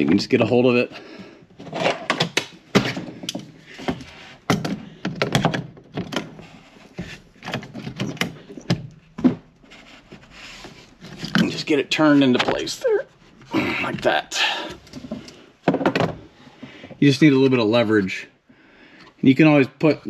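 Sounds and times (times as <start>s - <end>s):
metal and plastic clicks and knocks: 1.6s - 9.5s, 14.8s - 16.2s.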